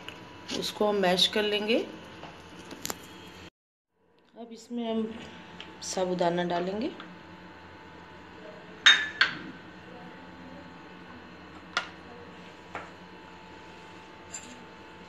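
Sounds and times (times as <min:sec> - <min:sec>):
glass bowl clinking: 0:08.8 - 0:09.4.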